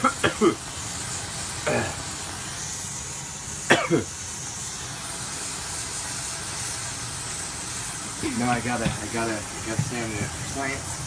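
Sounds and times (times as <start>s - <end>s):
person coughing: 0.0s - 0.6s, 1.7s - 2.0s, 3.7s - 4.1s
smoke bomb hissing: 0.0s - 11.0s.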